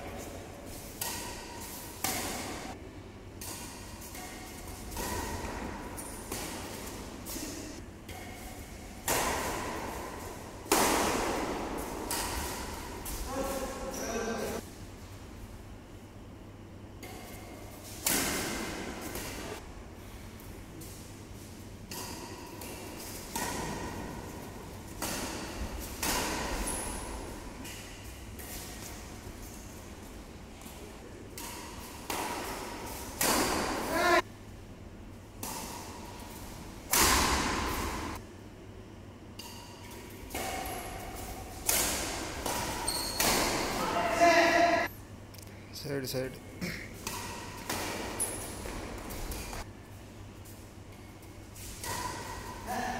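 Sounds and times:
rackets hitting shuttlecock: 0.9 - 13.4, 17.0 - 19.6, 21.9 - 29.6, 30.6 - 34.2, 35.4 - 38.2, 39.3 - 44.8, 47.0 - 49.7, 51.6 - 52.6.

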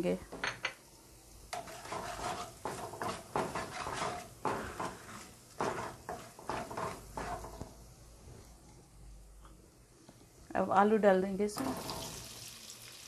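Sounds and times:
spatula scraping a wok: 1.5 - 7.6.

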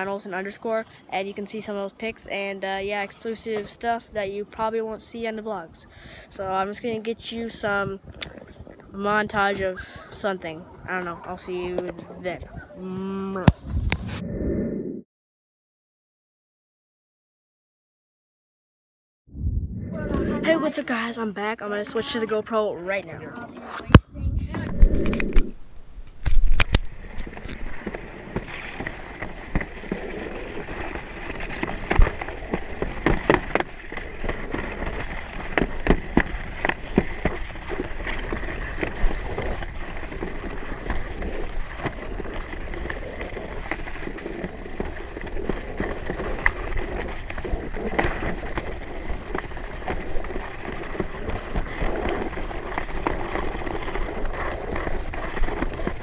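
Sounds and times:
sled rumbling and scraping on track: 26.5 - 56.0
sled knocking and rattling: 27.1 - 56.0.

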